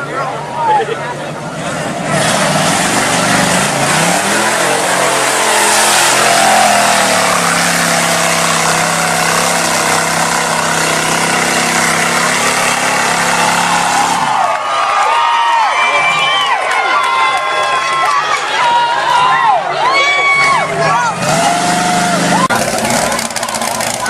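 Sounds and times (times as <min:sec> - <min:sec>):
truck engine revving: 0:01.1 - 0:14.6, 0:20.4 - 0:24.0
spraying mud rush: 0:01.5 - 0:14.4.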